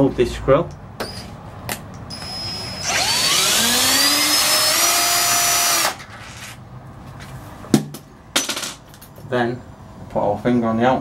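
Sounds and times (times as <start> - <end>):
power drill motor whine: 2.1 - 6.0.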